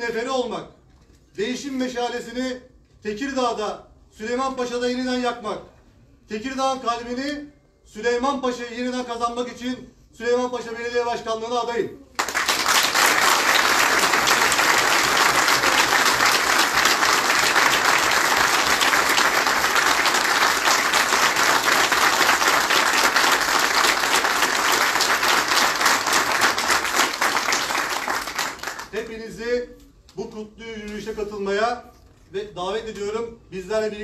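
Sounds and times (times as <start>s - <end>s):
audience applause: 12.2s - 28.9s.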